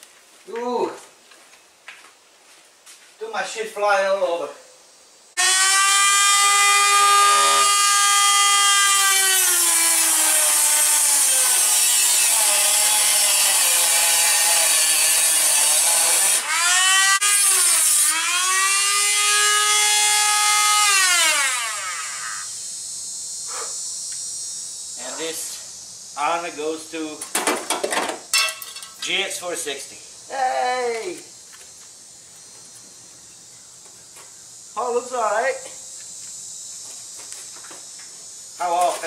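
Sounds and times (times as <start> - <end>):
power tool cutting steel: 5.4 - 22.6.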